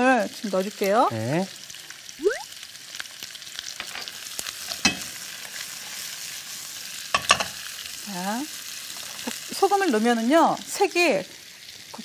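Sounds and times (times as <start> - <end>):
vegetables sizzling in oil: 0.0 - 12.0
spatula clacking against pan: 4.7 - 5.1.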